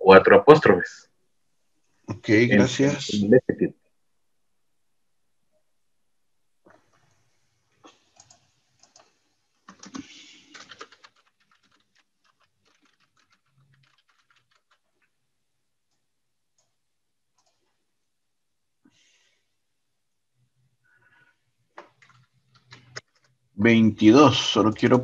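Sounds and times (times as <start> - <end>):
typing on keyboard: 7.8 - 15.2, 21.8 - 23.4.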